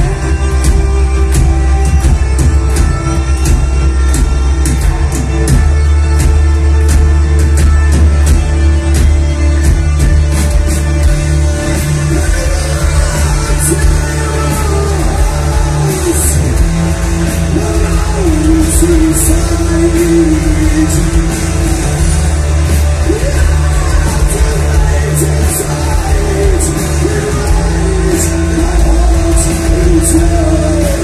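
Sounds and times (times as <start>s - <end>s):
heavy metal band playing: 0.0s - 31.0s
person singing: 10.5s - 31.0s.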